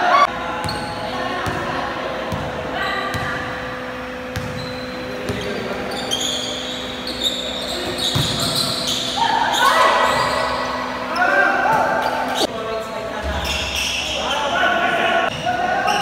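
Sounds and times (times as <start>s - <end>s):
sneaker squeaks: 0.1s - 1.6s, 3.1s - 12.5s, 13.2s - 14.6s, 15.3s - 16.0s
basketball bouncing on hard court: 3.1s - 3.4s, 4.3s - 4.7s, 8.1s - 8.5s
players shouting: 7.7s - 12.5s, 14.1s - 16.0s.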